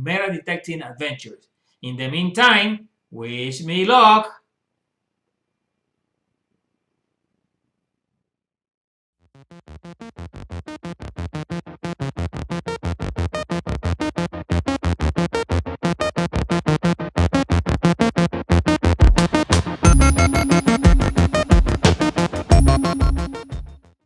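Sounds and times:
fast pulsing electronic beat: 19.9 - 23.7.

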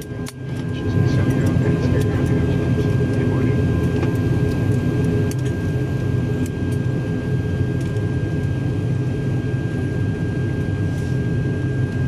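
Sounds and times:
aircraft cabin engine hum: 0.0 - 12.0
high engine whine: 0.0 - 12.0.

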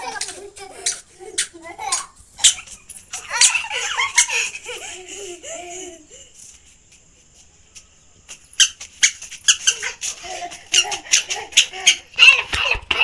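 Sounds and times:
child squealing: 0.0 - 4.5, 9.0 - 13.0
children laughing: 0.0 - 6.7, 8.8 - 13.0.

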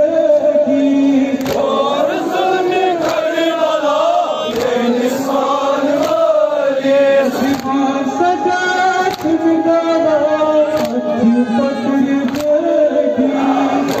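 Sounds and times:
men chanting a lament: 0.0 - 14.0
chest beating in unison: 4.4 - 6.4.

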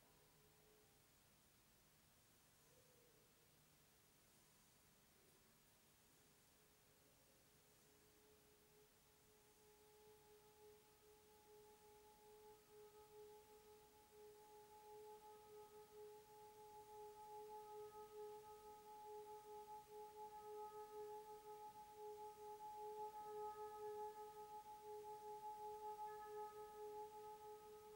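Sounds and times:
singing bowl tone: 9.3 - 27.9.

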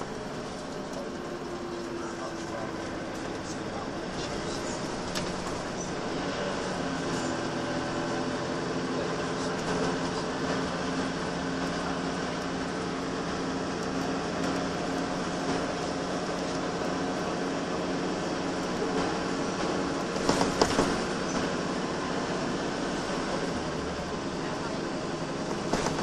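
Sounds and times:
bus diesel engine running: 0.0 - 26.0
road and tyre noise: 0.0 - 26.0
interior rattles: 25.5 - 26.0.

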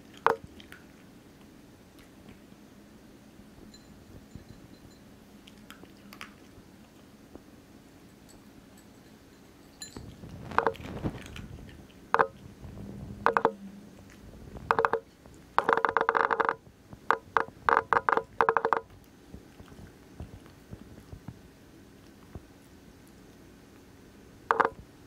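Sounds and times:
dog crunching dry kibble: 10.0 - 12.4.

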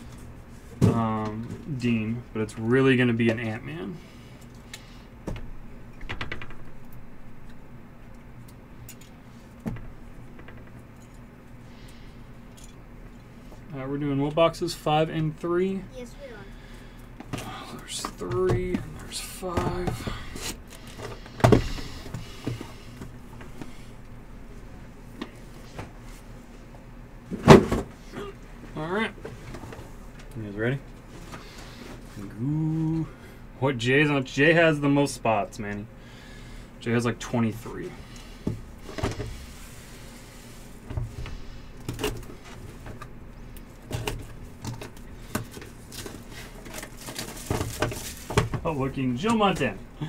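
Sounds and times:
boxes thumping on a table: 27.3 - 27.9
wrap and cardboard rustling: 43.7 - 48.8.

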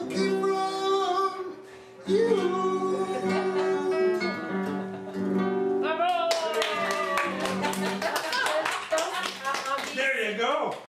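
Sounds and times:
person singing: 0.0 - 4.6
acoustic guitar: 0.0 - 8.4.

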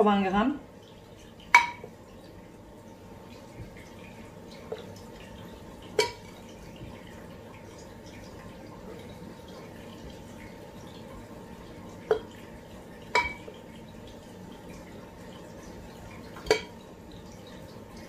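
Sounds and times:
spoon tapping against bowl: 1.5 - 1.9, 13.2 - 13.4.

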